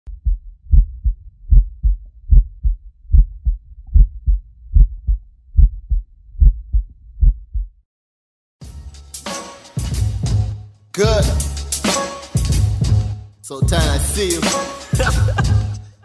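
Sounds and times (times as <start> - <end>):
heartbeat thumps: 0.1 - 7.8.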